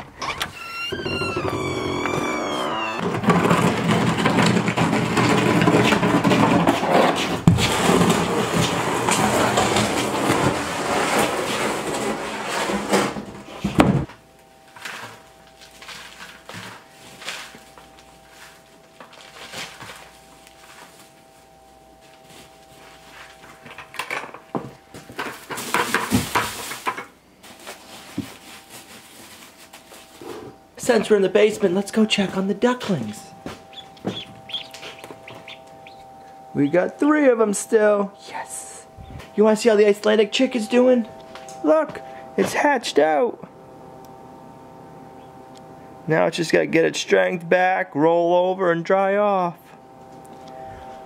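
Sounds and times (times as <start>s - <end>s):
door hinge squeaking: 0.0s - 4.6s, 33.7s - 36.9s
faint steady hum: 0.0s - 51.0s
wood shavings rustling in bucket: 3.0s - 13.6s, 14.6s - 23.8s, 25.0s - 43.0s.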